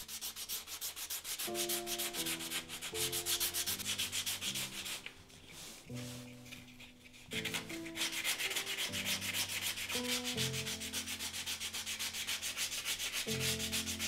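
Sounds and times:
sandpaper rubbing on wood: 0.0s - 14.0s.

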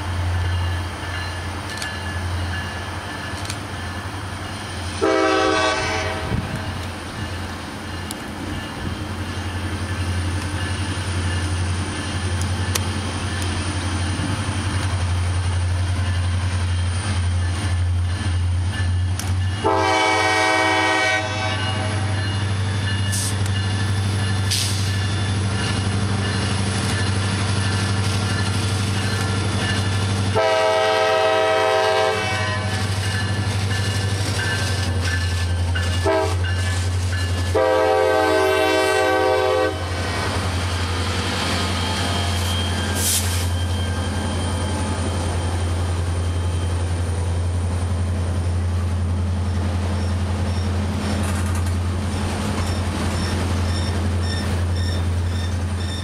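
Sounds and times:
train air horn: 5.0s - 6.6s, 19.6s - 22.2s, 30.3s - 33.0s, 36.0s - 36.5s, 37.5s - 40.2s.

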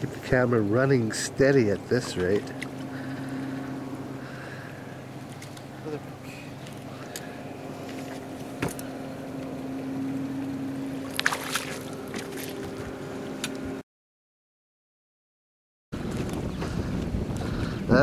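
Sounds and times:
boat motor humming: 0.0s - 13.8s, 16.0s - 18.0s
fish splashing in water: 10.9s - 12.8s.

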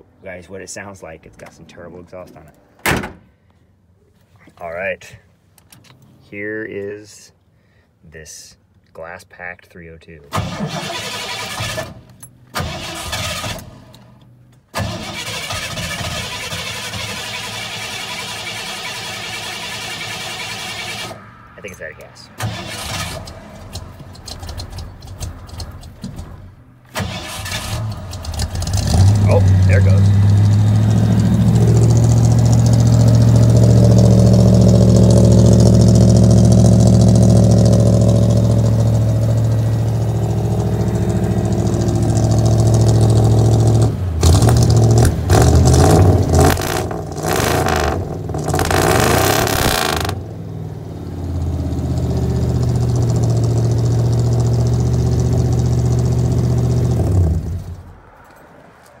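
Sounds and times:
engine idling deep drone: 28.3s - 57.5s.

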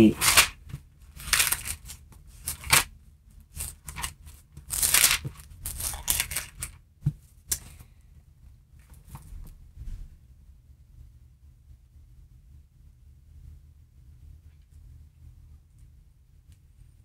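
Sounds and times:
book pages rustling: 0.0s - 2.9s, 3.5s - 7.7s.

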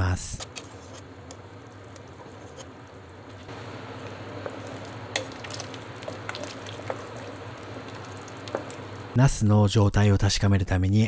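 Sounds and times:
soup bubbling in a pot: 1.1s - 9.2s.

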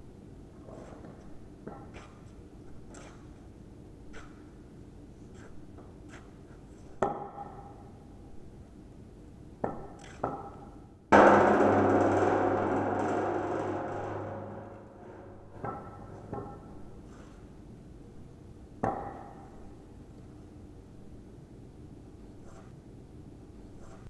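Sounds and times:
metal ringing with deep hum: 11.2s - 16.8s.

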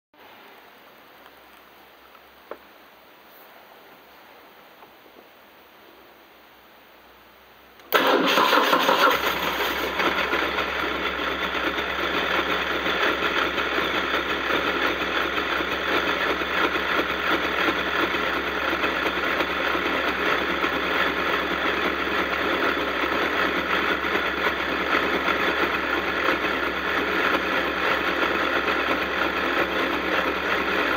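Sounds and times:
motorcycle engine idling: 9.3s - 30.9s.

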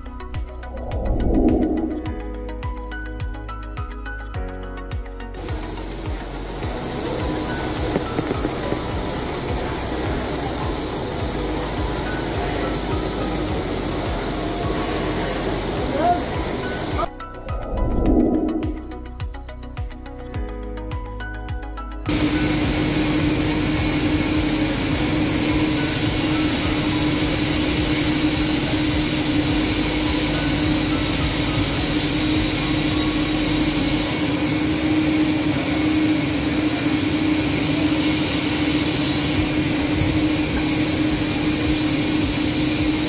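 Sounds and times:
constant hum: 0.0s - 2.2s, 5.4s - 19.0s, 22.1s - 43.0s
music: 0.0s - 43.0s
dyeing machine whirring: 5.4s - 17.1s, 22.1s - 43.0s.

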